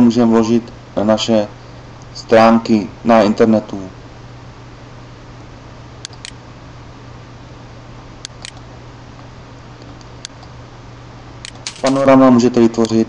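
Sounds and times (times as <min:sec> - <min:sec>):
computer mouse clicking: 0:06.0 - 0:06.4, 0:08.2 - 0:08.6.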